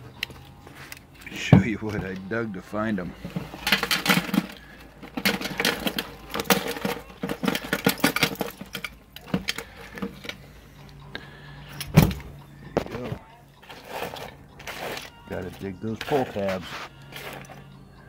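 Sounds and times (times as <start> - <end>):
metal junk clattering onto tray: 3.2 - 10.4, 13.6 - 17.6.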